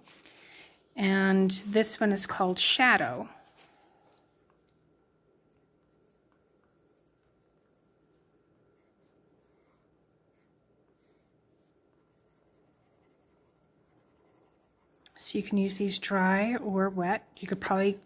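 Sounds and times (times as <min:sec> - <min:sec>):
pencil scratching on paper: 0:05.4 - 0:18.0.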